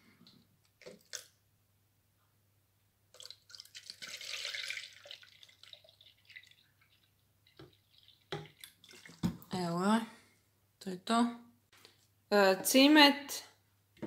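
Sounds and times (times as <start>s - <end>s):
milk trickling into plastic jug: 3.1s - 9.5s.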